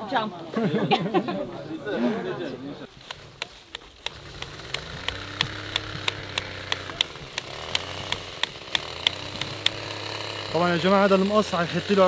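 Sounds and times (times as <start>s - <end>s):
sharp regular ticks: 2.9s - 12.0s
vehicle engine running: 2.9s - 12.0s.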